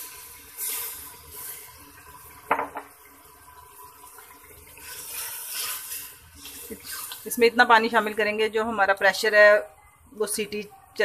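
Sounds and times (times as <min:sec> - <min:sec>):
water pouring into pot: 0:00.0 - 0:08.3.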